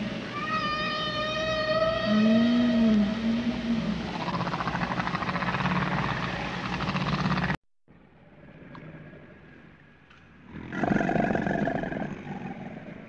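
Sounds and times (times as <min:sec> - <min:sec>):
alligator growling: 0:01.4 - 0:07.6, 0:10.4 - 0:13.0.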